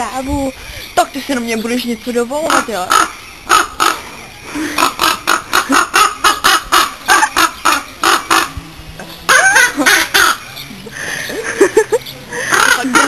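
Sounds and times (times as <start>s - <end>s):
bird harsh calls: 0.4s - 13.0s.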